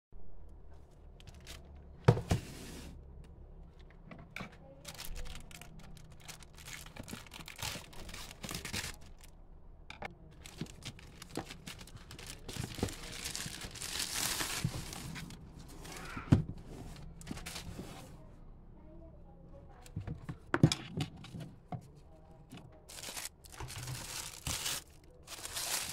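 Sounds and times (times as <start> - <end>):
packaging rustling and tearing: 4.8 - 9.3, 10.4 - 16.1, 22.9 - 25.9.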